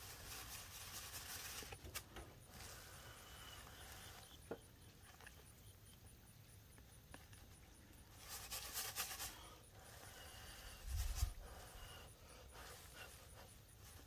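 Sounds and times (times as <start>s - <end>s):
breath blown across seeds: 8.9s - 14.0s.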